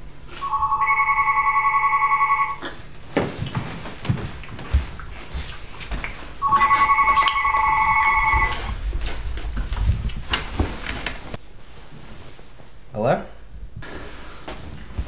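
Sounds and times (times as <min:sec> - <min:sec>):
electronic telephone ring: 0:00.4 - 0:02.6, 0:06.4 - 0:08.7.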